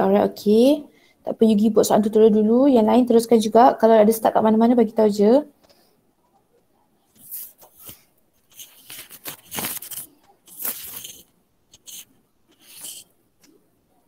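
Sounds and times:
rustling and scraping handling noise: 7.0 - 13.6.

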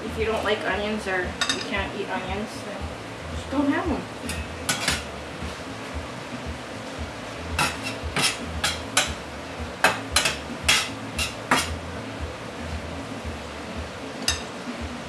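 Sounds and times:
spatula scraping a frying pan: 4.3 - 5.1, 7.6 - 9.2, 10.2 - 11.8.

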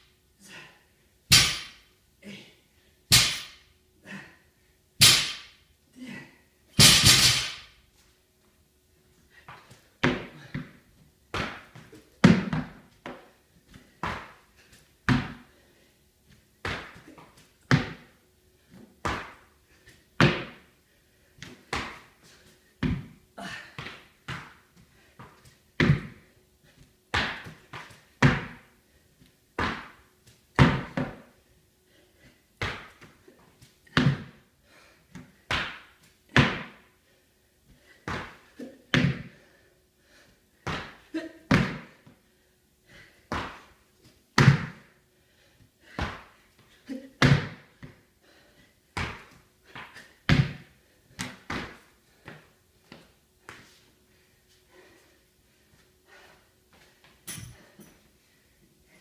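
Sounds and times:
gym equipment thudding and clanking: 6.8 - 7.7, 57.2 - 57.8.

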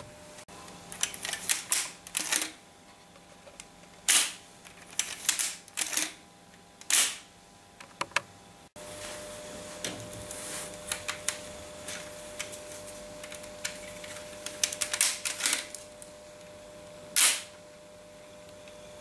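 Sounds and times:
faint steady hum: 0.0 - 19.0
plastic parts clicking and rattling: 0.9 - 2.6, 3.2 - 6.2.

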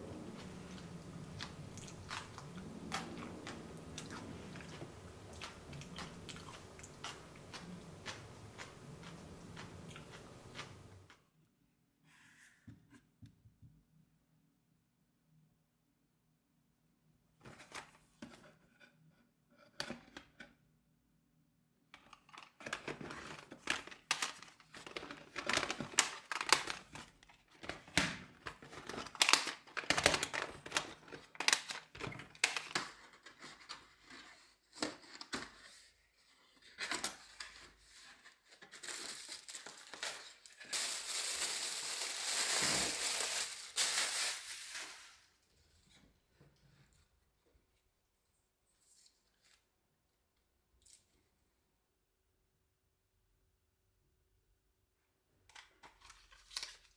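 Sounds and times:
plastic packaging crinkling: 22.3 - 34.2, 36.6 - 45.3.

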